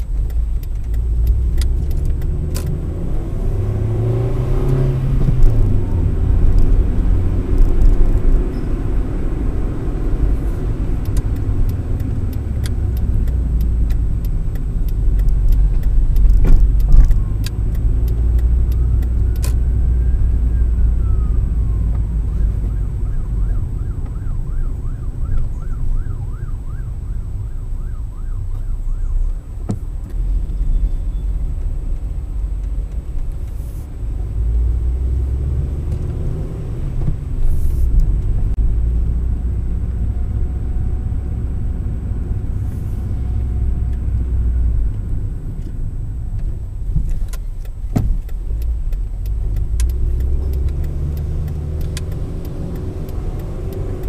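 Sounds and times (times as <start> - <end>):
car road and engine rumble: 0.0 - 54.0
siren wailing and yelping: 19.2 - 29.4.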